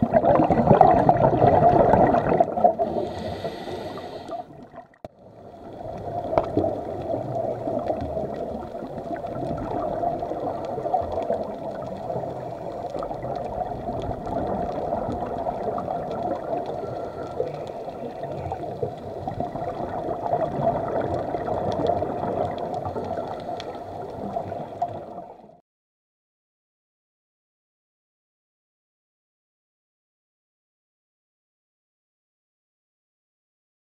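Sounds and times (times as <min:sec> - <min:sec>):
muffled underwater gurgling rush: 0:00.0 - 0:25.6
faint underwater clicks: 0:00.1 - 0:25.6.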